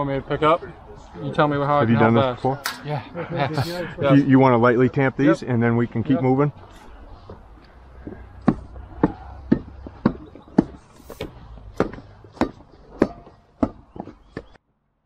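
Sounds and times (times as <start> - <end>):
stamp mats knocking dully: 8.0 - 14.6.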